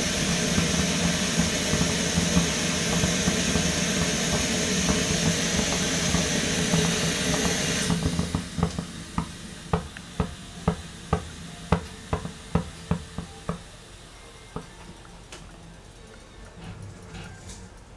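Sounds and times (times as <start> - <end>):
stove burner hissing: 0.0 - 17.9.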